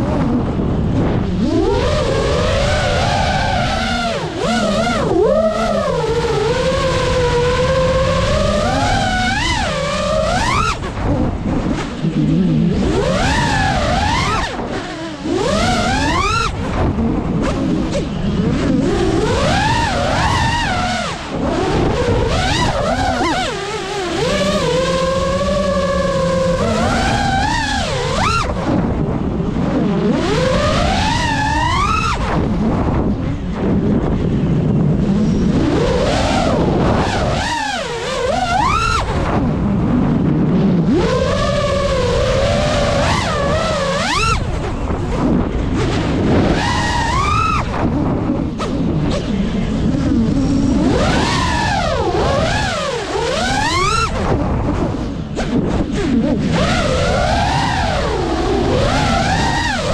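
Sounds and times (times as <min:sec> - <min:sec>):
drone motors whining: 0:00.0 - 0:59.9.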